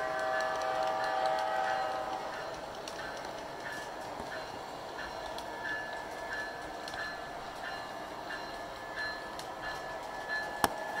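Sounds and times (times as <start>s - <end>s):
model train rolling on track: 0.0s - 11.0s.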